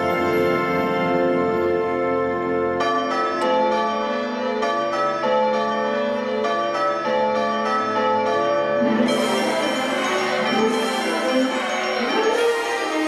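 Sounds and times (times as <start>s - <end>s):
band playing: 0.0s - 3.4s, 8.8s - 13.0s
bell-like chiming melody: 0.0s - 13.0s.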